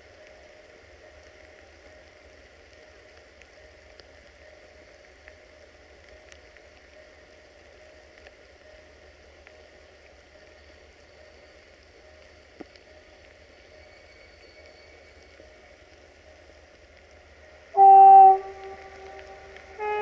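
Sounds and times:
faint steady hum: 0.0s - 20.0s
light rain falling: 0.0s - 20.0s
water drips: 17.8s - 20.0s.

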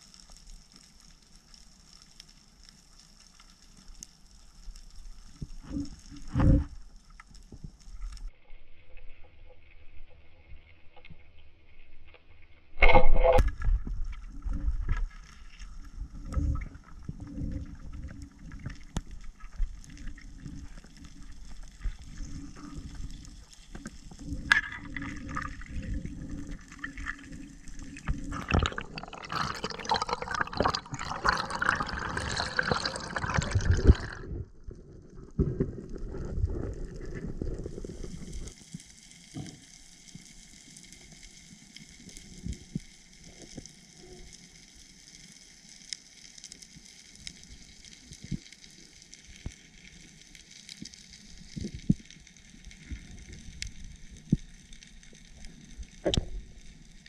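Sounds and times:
speargun shot underwater: 12.8s - 13.5s
rush of water: 24.3s - 34.4s.

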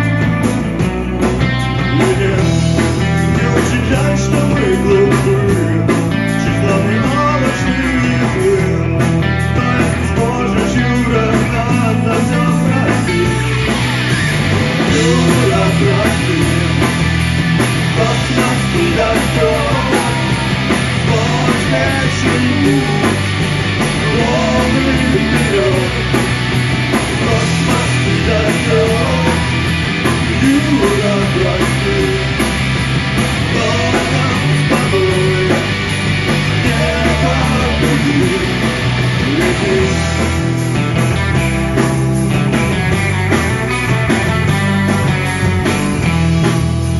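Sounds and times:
bass guitar: 0.0s - 46.9s
drums: 0.0s - 46.9s
electric guitar: 0.0s - 46.9s
man singing: 1.7s - 13.7s, 14.9s - 16.9s, 17.9s - 23.3s, 24.0s - 26.2s, 27.1s - 29.6s, 30.2s - 32.5s, 33.4s - 40.3s.

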